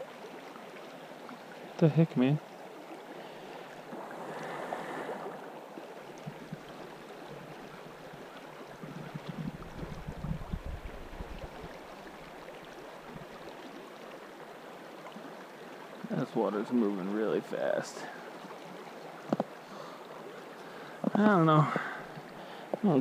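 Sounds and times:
river current rushing: 0.0 - 23.0
low rumbling on microphone: 8.9 - 11.8.

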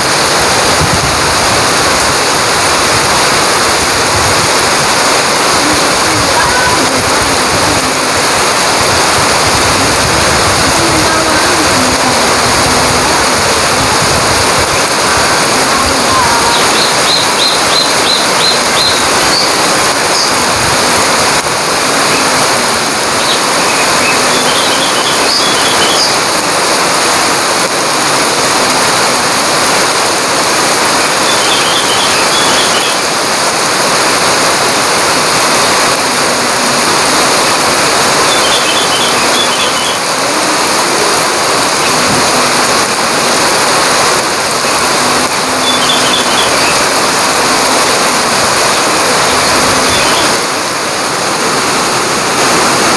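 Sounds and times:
heavy rain pouring on foliage: 0.0 - 52.9
bird chirping high notes: 23.2 - 26.2, 31.2 - 33.0, 38.2 - 40.1, 45.6 - 46.9, 49.8 - 50.4.

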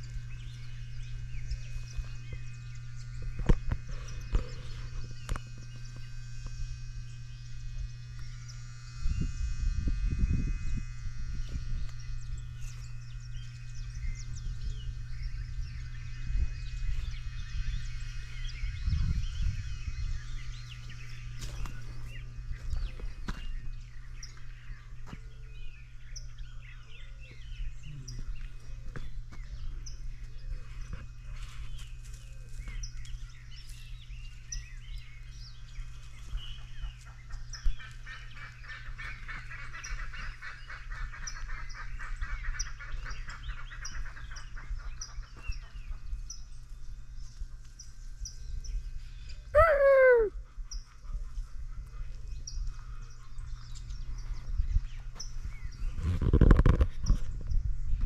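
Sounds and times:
birds twittering: 0.0 - 58.0
low hum: 0.0 - 58.0
bird honking: 37.7 - 45.2.

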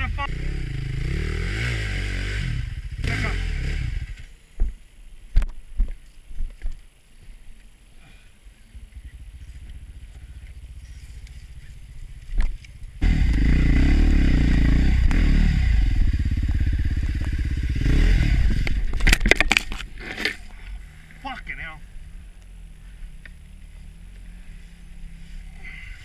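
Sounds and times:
motorcycle engine: 0.0 - 4.3, 8.6 - 26.0
motorcycle falling over: 18.6 - 20.5.

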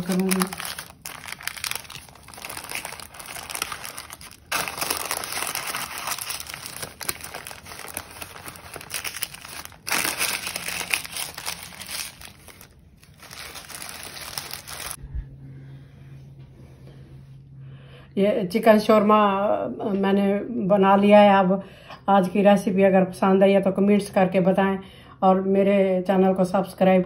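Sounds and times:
paper crinkling and rustling: 0.0 - 15.0.

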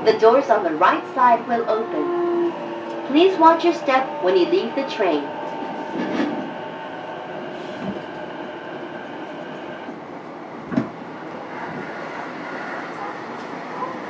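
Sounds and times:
electric train motor whine: 0.0 - 10.0
wheels rumbling on rail: 0.0 - 14.0.

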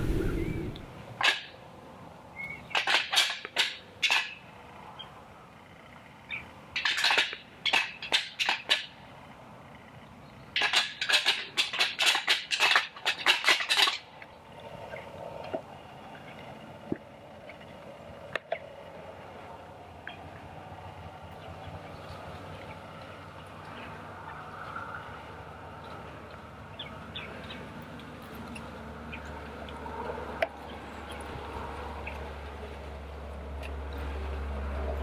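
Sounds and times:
antlers clacking together: 6.8 - 9.0, 10.6 - 14.1.

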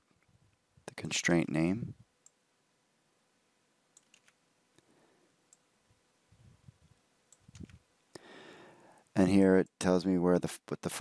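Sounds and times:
mouse and keyboard clicks: 4.0 - 4.4, 7.3 - 7.8.

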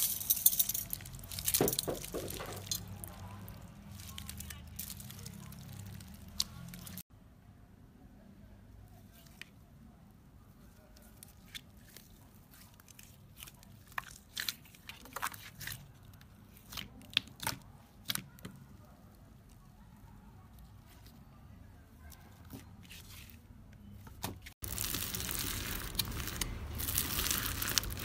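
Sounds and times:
slime squishing: 1.2 - 7.0, 10.5 - 21.2, 24.2 - 28.0
slime crackling and popping: 2.7 - 7.0, 24.6 - 28.0.

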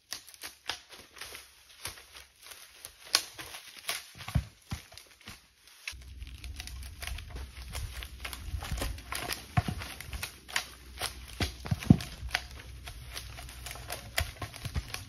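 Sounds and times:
log crashing into pile: 6.0 - 15.0
logs thudding down a slope: 6.1 - 15.0.

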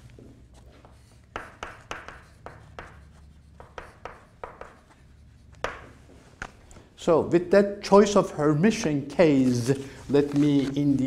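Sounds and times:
chalk tapping and scraping on blackboard: 0.4 - 6.6.

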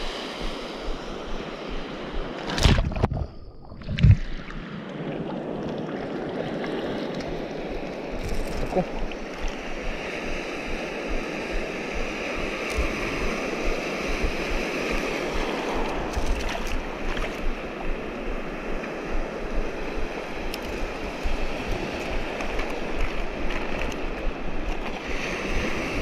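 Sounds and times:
surf washing along shore: 0.0 - 2.8, 4.0 - 26.0
wind buffeting microphone: 7.2 - 26.0
faint clicks: 20.5 - 20.9.

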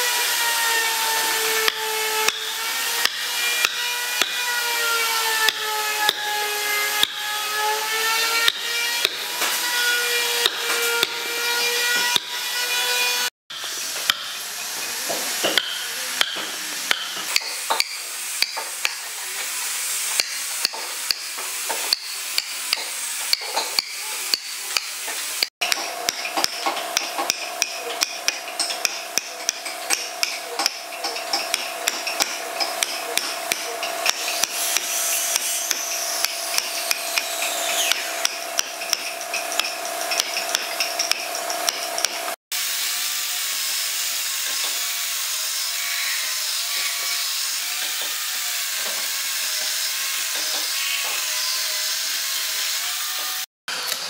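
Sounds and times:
chainsaw cutting wood: 0.0 - 45.6, 46.4 - 54.0
mallet striking wood chisel: 1.0 - 7.5, 8.3 - 9.6, 10.2 - 11.3, 11.9 - 12.4, 13.5 - 19.0, 20.2 - 24.9, 25.6 - 42.3.

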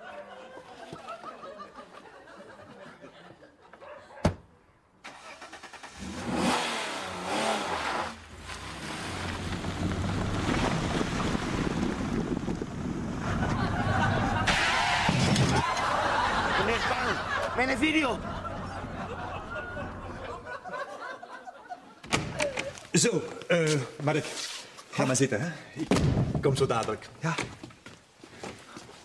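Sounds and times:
car engine starting and revving: 5.0 - 16.6
car driving away: 5.1 - 20.6.

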